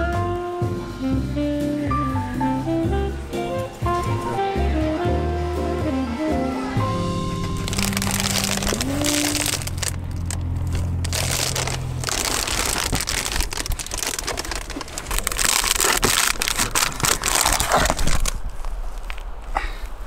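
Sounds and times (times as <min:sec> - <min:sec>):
sleeping bag rustling: 0:07.4 - 0:20.0.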